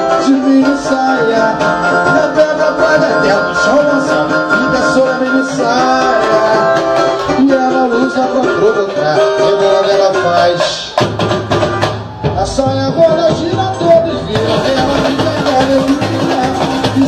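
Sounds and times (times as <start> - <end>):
samba music with singing: 0.0 - 17.0.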